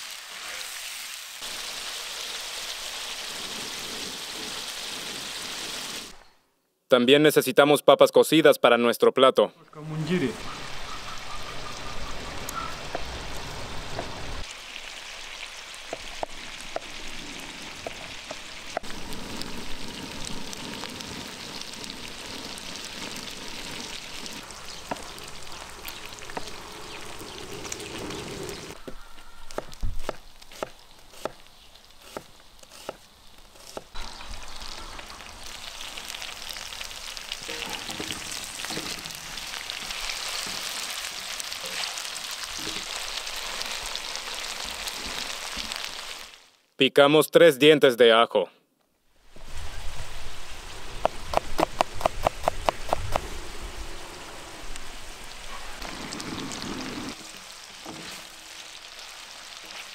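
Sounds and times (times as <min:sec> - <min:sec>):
meat sizzling in a pan: 0:00.0 - 0:06.2, 0:10.4 - 0:29.5, 0:33.2 - 0:46.6, 0:54.7 - 0:59.9.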